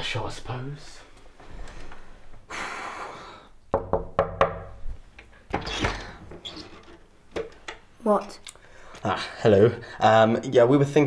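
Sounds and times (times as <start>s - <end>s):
breathy hiss: 1.4s - 3.6s
knuckles knocking on wooden door: 3.7s - 4.8s.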